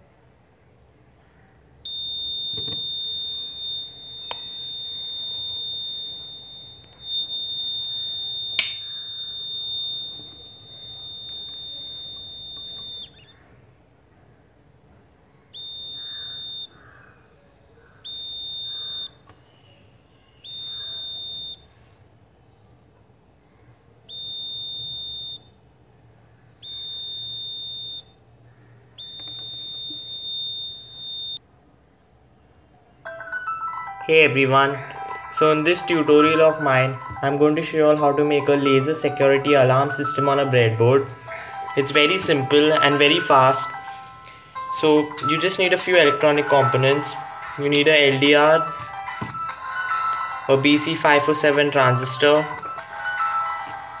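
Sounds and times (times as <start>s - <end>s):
alarm buzzer beeps: 1.9s - 13.4s, 15.6s - 16.9s, 18.0s - 19.3s, 20.4s - 21.7s, 24.1s - 25.6s, 26.6s - 28.2s, 29.0s - 31.4s, 33.8s - 54.0s
alarm buzzer high-pitched tone: 1.9s - 13.4s, 15.6s - 16.8s, 18.1s - 19.2s, 20.4s - 21.7s, 24.1s - 25.6s, 26.6s - 28.2s, 29.0s - 31.4s, 34.0s - 53.8s
sharp click: 4.2s - 4.6s, 8.5s - 9.0s.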